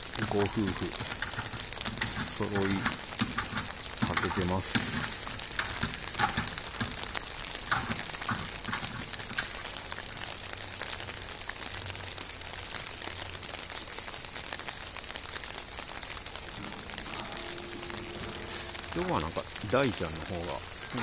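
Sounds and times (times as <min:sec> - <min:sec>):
crackles and ticks: 0:00.0 - 0:21.0
outdoor hiss: 0:00.0 - 0:21.0.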